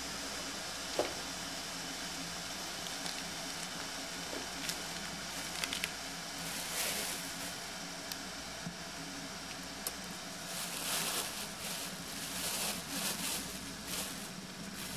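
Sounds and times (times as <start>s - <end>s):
room hiss: 0.0s - 14.9s.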